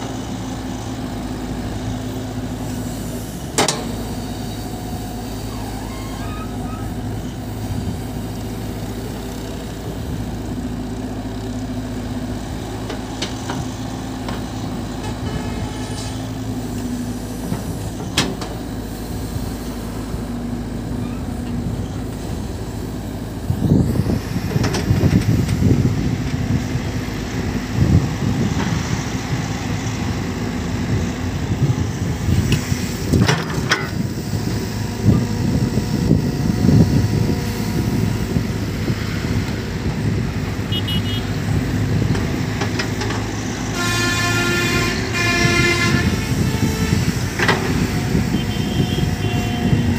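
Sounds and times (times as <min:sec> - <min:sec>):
excavator diesel engine running: 0:00.0 - 0:49.9.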